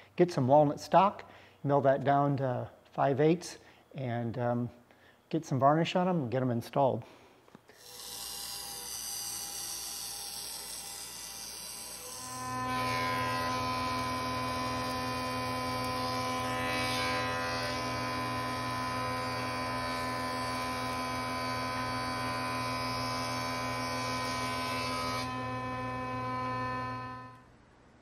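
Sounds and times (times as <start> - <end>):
thickness planer humming: 7.8 - 27.5.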